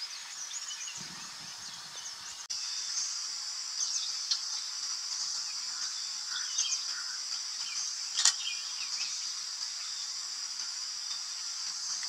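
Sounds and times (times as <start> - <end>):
faint bird chirps: 0.0 - 12.0
insects droning: 0.0 - 12.0
sharp click: 8.2 - 8.4.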